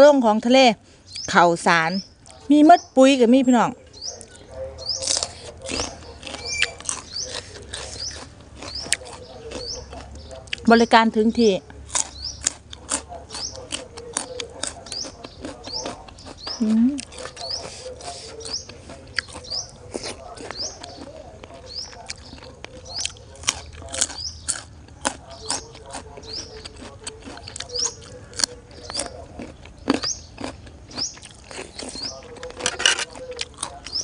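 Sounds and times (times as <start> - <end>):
bird rising chirp: 3.7 - 12.5
crunching raw carrot: 4.1 - 10.9, 11.7 - 34.0.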